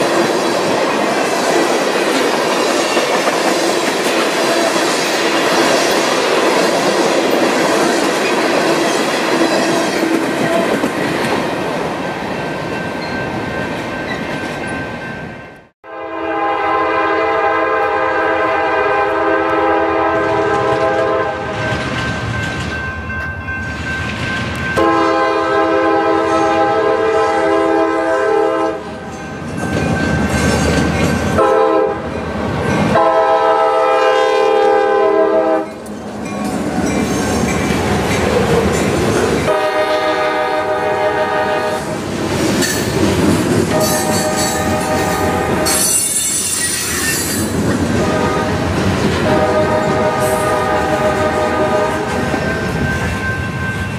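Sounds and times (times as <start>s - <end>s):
train rumbling and clattering: 0.0s - 15.7s, 17.8s - 53.9s
locomotive air horn blasts: 15.8s - 21.6s, 24.8s - 29.0s, 31.4s - 32.1s, 32.9s - 35.8s, 39.4s - 42.0s, 43.7s - 46.6s, 48.0s - 52.2s
high wheel squeal: 45.6s - 47.5s.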